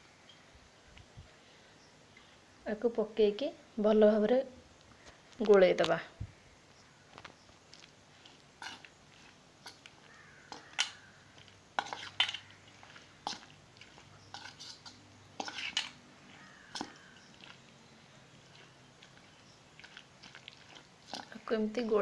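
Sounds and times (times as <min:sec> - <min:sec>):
metal spoon scraping steel bowl: 0:08.6 - 0:11.0, 0:11.8 - 0:17.6, 0:18.4 - 0:22.0.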